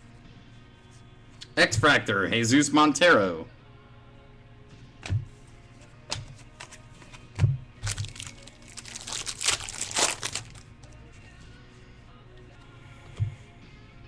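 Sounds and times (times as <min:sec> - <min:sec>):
foil wrapper crinkling: 0:07.8 - 0:10.7.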